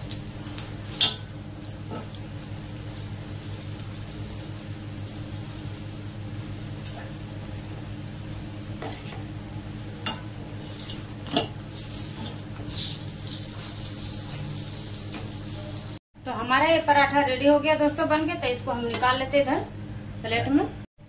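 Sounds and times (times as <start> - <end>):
flatbread sizzling: 0.0 - 16.0
metal spatula scraping iron griddle: 10.1 - 14.7.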